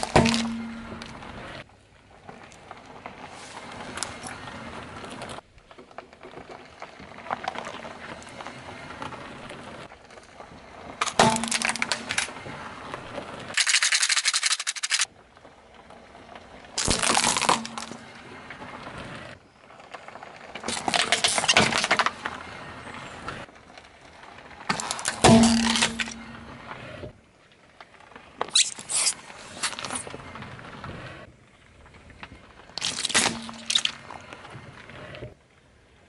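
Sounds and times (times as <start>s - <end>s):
plastic cracking under car tyre: 0.0s - 1.1s, 10.9s - 15.1s, 16.7s - 18.1s, 19.8s - 22.3s, 24.5s - 26.2s, 28.3s - 30.2s, 32.2s - 35.3s.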